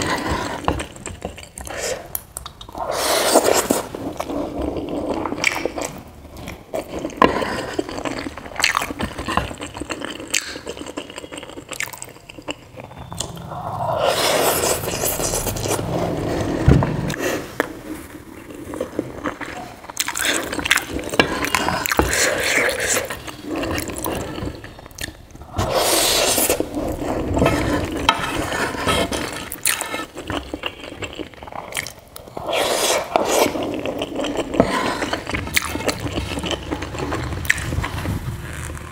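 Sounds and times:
mouth chewing sounds: 0.0s - 16.3s, 18.3s - 28.0s, 29.2s - 38.9s
wooden spoon scraping a pan: 25.6s - 30.2s.

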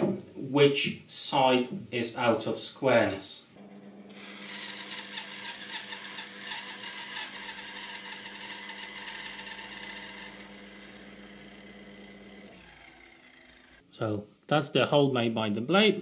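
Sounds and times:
bandsaw motor hum: 3.6s - 13.8s
saw blade cutting board: 3.6s - 13.8s.

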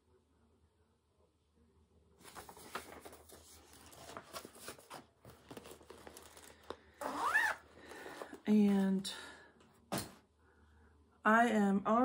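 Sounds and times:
paper rustling: 2.2s - 6.9s.

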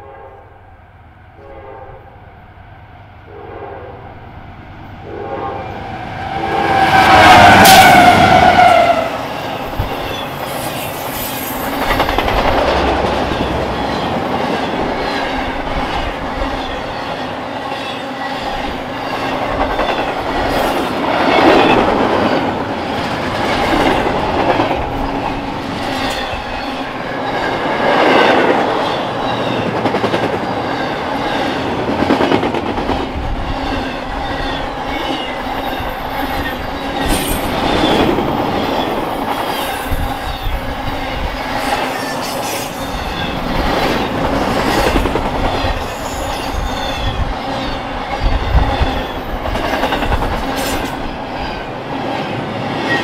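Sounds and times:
freight train rumbling past: 0.0s - 53.0s.

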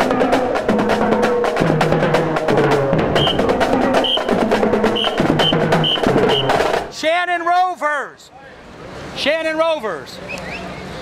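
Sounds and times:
marching bass drums: 0.0s - 7.1s
snare drum strokes and rolls: 0.0s - 7.2s.

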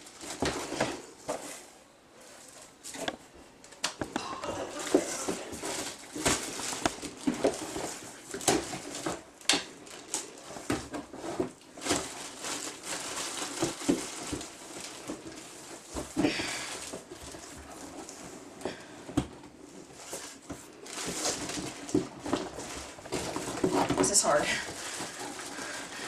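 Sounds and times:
cardboard box rustling and scraping: 4.7s - 9.3s, 10.0s - 26.0s.

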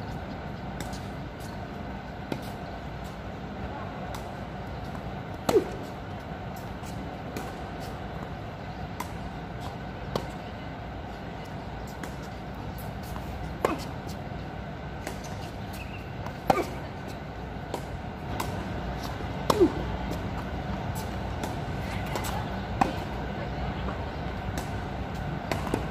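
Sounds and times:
city traffic hum: 0.0s - 25.9s
tennis ball bouncing: 0.7s - 1.6s, 4.0s - 10.4s, 11.9s - 25.9s
racket hitting tennis ball: 4.1s - 6.0s, 11.9s - 14.2s, 14.9s - 23.3s, 24.5s - 25.9s.

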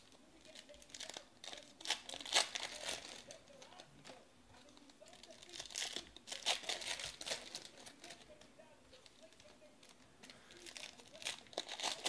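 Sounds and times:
foil wrappers crinkling: 0.0s - 12.0s.

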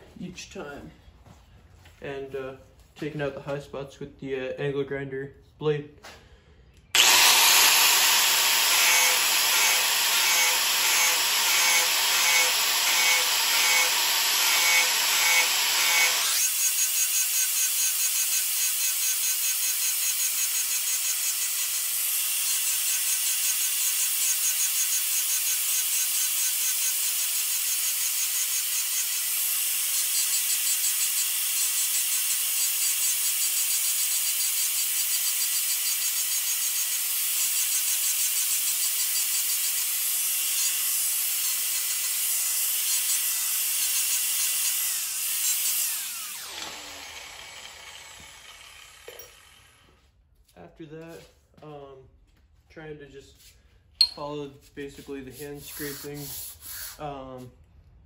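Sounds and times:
angle grinder grinding metal: 7.0s - 50.0s
grinder spinning down: 7.0s - 50.0s.

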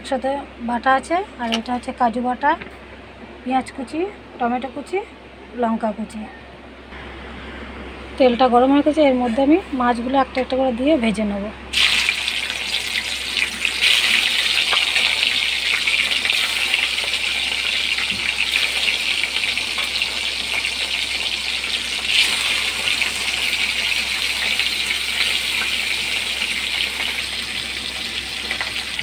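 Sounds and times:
fish sizzling in hot oil: 11.7s - 29.0s.

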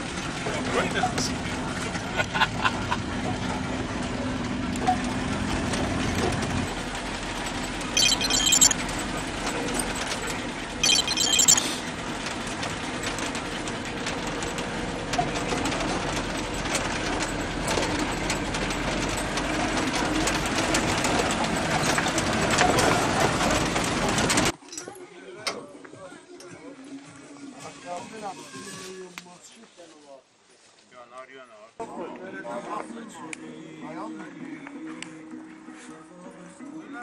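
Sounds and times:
vehicle engine and road rumble: 0.0s - 24.6s.

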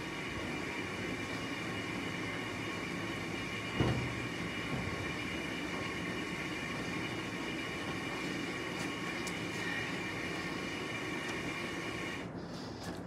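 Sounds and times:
mechanical hum of machinery: 0.0s - 13.0s
laundry thump in washer drum: 3.8s - 5.1s.

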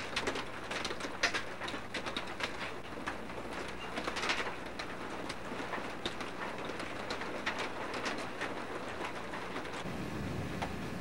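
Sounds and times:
storm rain hiss: 9.8s - 11.0s.

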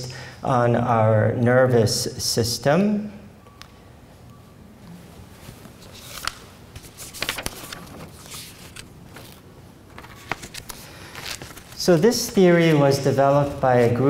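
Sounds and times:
paper rustling and shuffling: 5.4s - 14.0s.

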